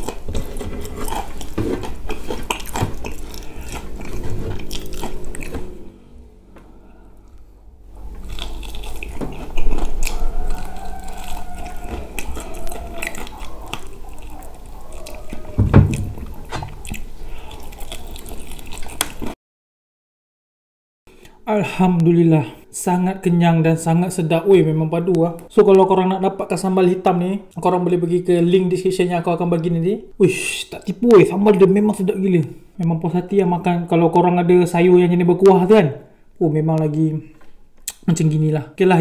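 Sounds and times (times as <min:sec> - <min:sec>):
chewing fried chicken: 0:00.0 - 0:05.6, 0:08.0 - 0:19.4
wet lip-smacking: 0:08.2 - 0:19.3, 0:37.8 - 0:38.1
small mouth clicks: 0:37.8 - 0:38.1.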